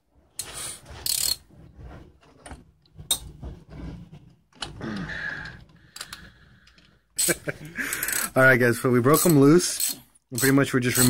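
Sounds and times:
ratchet clicking: 9.1s - 11.0s.

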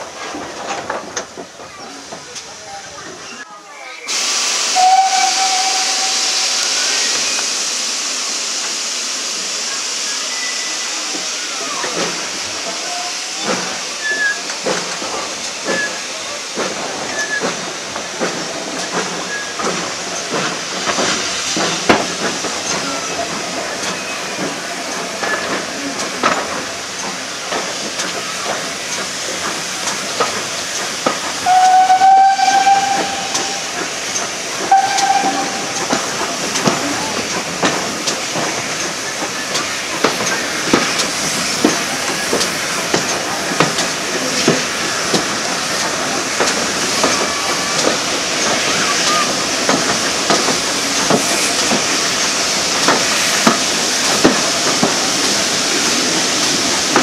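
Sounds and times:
train noise hiss: 0.0s - 57.0s
steam locomotive whistle: 4.5s - 7.6s, 31.4s - 33.9s, 34.6s - 36.0s.

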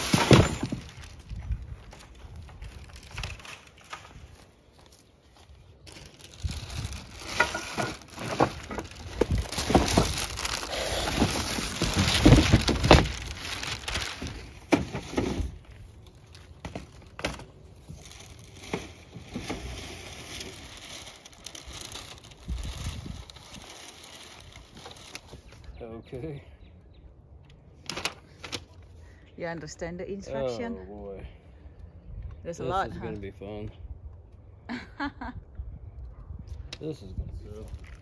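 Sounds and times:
cardboard and packing sheets crinkling: 0.0s - 15.6s, 16.2s - 25.6s.

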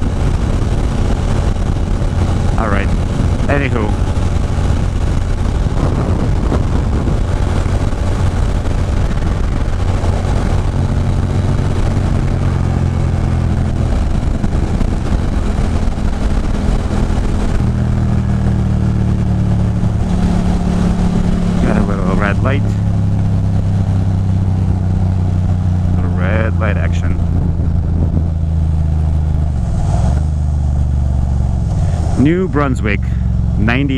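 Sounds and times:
motorcycle engine running: 0.0s - 33.9s
wind rush on microphone: 0.0s - 33.9s.

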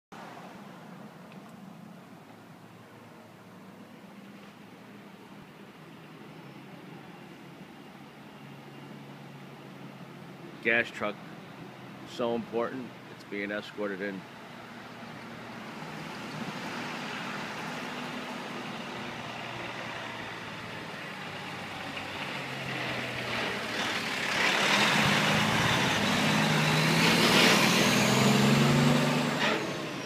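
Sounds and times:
tanker truck driving past: 8.4s - 30.0s.

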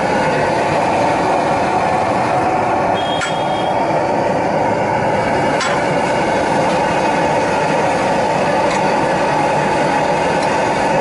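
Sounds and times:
loud street rumbling noise: 0.0s - 11.0s.

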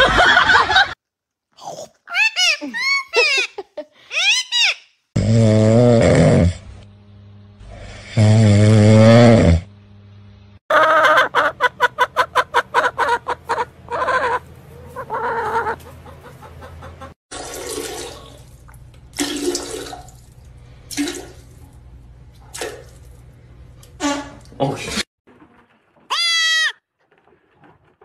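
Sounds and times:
hen clucking: 10.7s - 17.2s.

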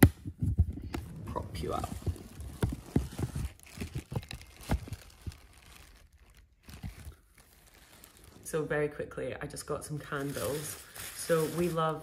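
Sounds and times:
soft knocks and rustles: 0.1s - 5.4s
fabric rubbing on microphone: 0.6s - 4.6s.

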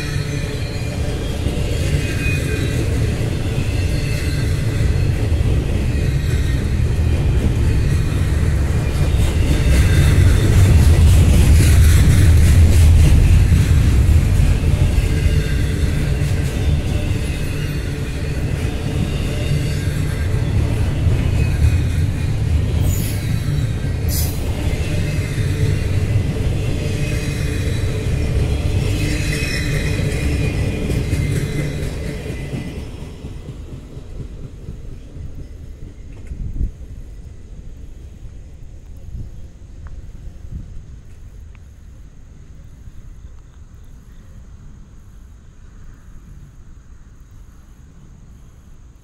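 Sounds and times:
train wheels rumbling on track: 0.0s - 49.0s.

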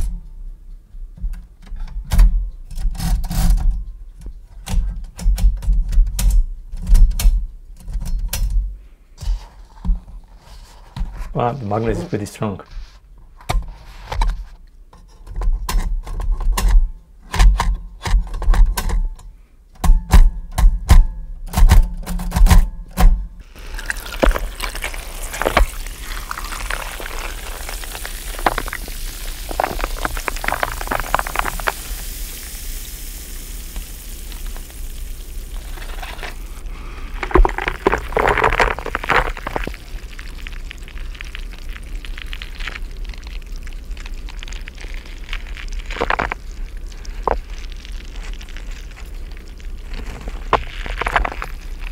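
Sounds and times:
liquid pouring into a glass: 23.5s - 36.6s.

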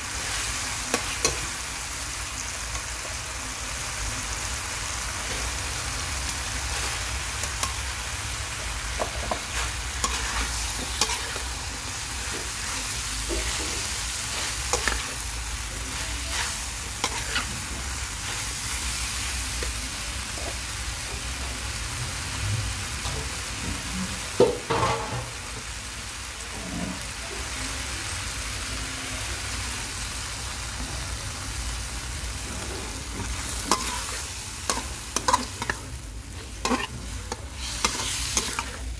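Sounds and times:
food sizzling in hot oil: 0.0s - 38.9s
metal spatula scraping pan: 9.2s - 11.5s, 16.2s - 17.5s, 32.5s - 38.9s.

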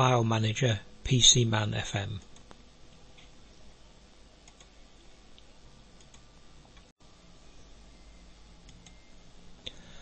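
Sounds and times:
faint room hiss and hum: 0.0s - 10.0s
computer mouse clicks: 4.4s - 4.7s, 5.4s - 6.2s, 8.6s - 9.0s.

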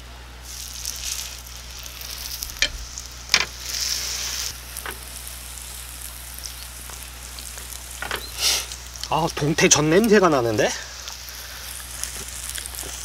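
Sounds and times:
batter sizzling in a pan: 0.0s - 13.0s
utensils clicking against pan: 2.5s - 3.6s.

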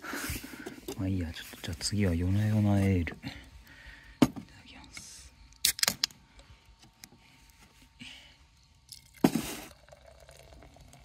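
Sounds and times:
can pull tab cracking open: 5.5s - 6.2s
beer pouring into metal tumbler: 8.9s - 11.0s.

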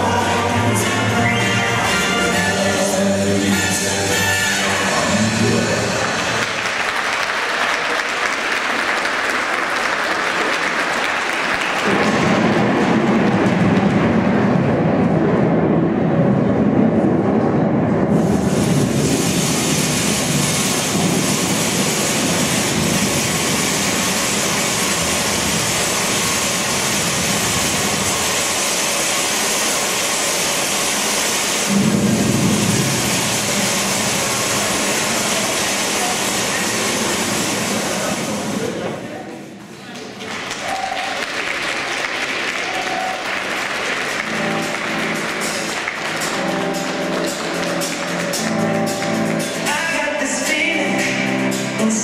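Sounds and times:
audience applauding: 4.9s - 14.5s, 32.5s - 38.8s, 39.8s - 49.7s
bright rushing noise: 11.7s - 39.2s, 42.1s - 51.9s.

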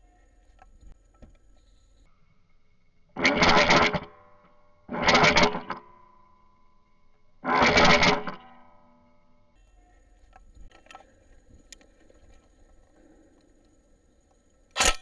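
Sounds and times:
faint ringing tone: 0.0s - 3.2s, 5.8s - 7.4s, 8.4s - 14.7s.

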